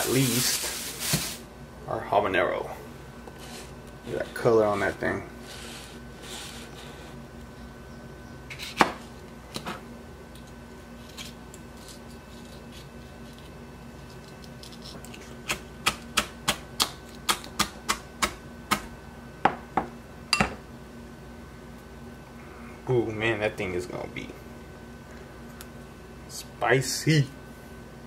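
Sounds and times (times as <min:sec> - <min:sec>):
knife chopping on cutting board: 0:08.6 - 0:09.0.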